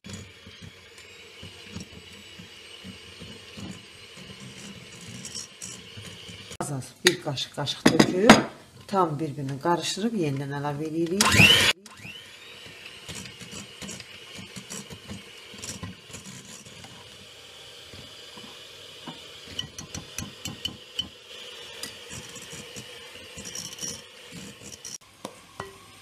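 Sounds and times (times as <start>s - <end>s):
electric hand mixer whining: 0.0s - 6.6s, 11.2s - 25.0s.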